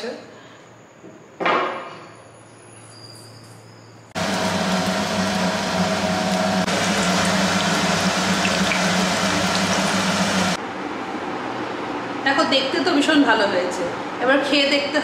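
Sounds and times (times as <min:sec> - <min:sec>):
fritters sizzling in hot oil: 0:04.2 - 0:10.6.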